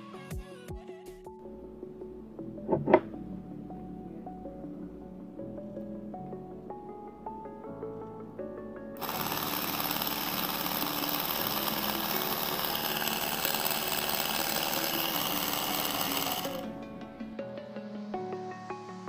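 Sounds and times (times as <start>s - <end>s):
small motor whirring: 9.0s - 16.7s.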